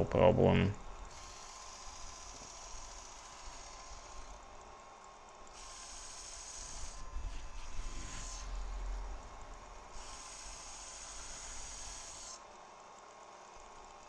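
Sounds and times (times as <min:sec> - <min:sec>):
electric sharpener motor whine: 0:00.8 - 0:14.0
knife blade hissing through sharpener: 0:05.6 - 0:08.6, 0:10.0 - 0:12.4.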